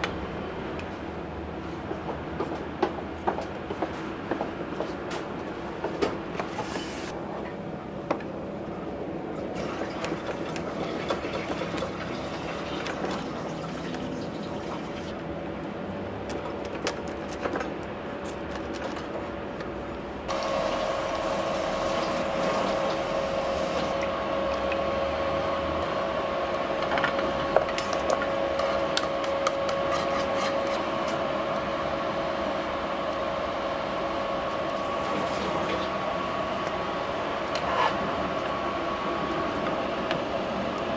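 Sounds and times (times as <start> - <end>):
steady hum: 17.7 - 40.9.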